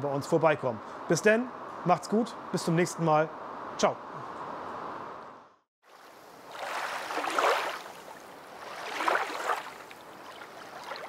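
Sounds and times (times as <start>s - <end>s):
rushing water: 5.8s - 11.0s.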